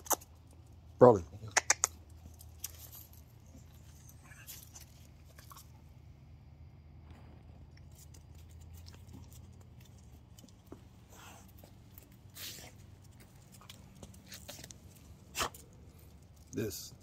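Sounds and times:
low steady hum: 0.0 - 17.0
dog chewing and gnawing: 2.0 - 5.9, 7.8 - 16.3.

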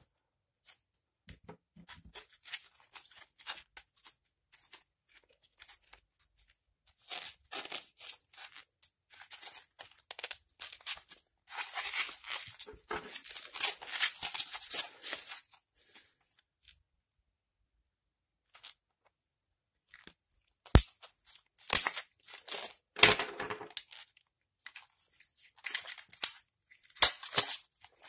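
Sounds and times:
rubber gloves crinkling on battery: 7.0 - 15.6, 19.9 - 23.0, 23.6 - 28.0.

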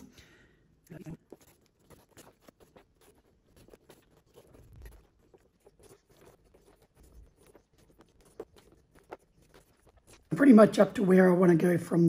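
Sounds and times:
thread drawn through leather: 0.9 - 10.4.

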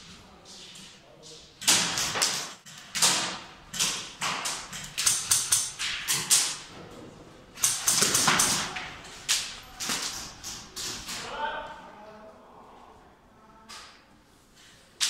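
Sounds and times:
airsoft rifle shots echoing: 7.6 - 8.8.

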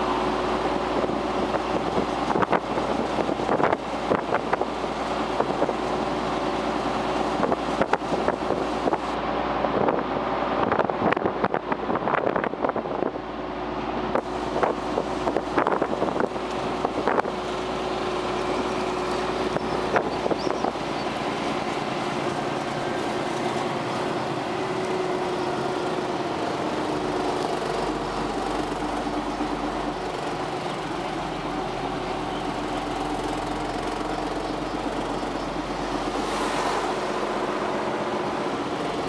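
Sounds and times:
tractor engine running: 0.0 - 39.0.

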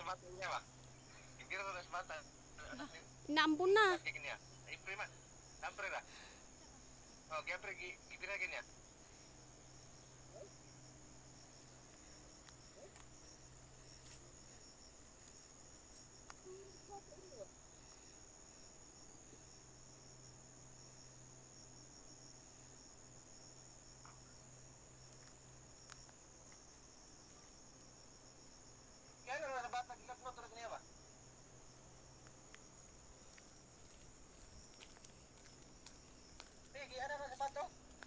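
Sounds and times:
high-pitched insect chorus: 0.0 - 38.0
faint ticks: 11.8 - 13.2, 15.2 - 16.5, 25.1 - 26.8, 32.2 - 38.0.

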